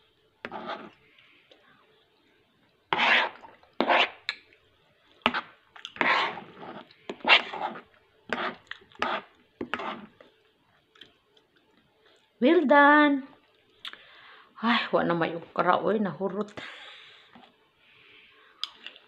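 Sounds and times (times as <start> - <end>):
fork scraping a plate: 0.5 - 1.0, 2.9 - 4.2, 5.3 - 10.1.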